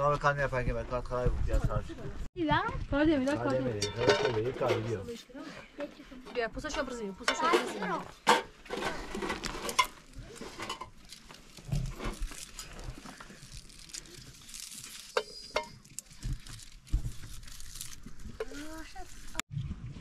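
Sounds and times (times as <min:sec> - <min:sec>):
dry onion skins rustling: 0:08.7 - 0:19.4.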